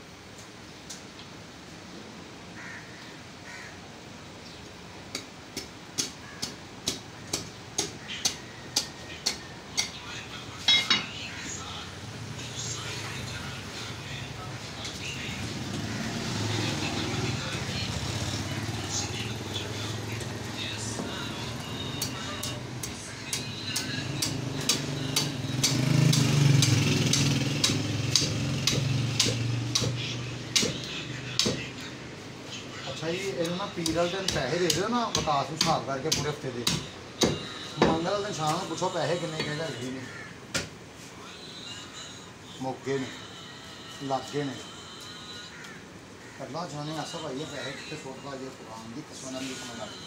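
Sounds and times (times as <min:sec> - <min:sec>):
cleaver chopping on wooden block: 0:05.1 - 0:09.9, 0:22.4 - 0:31.6, 0:33.8 - 0:38.0.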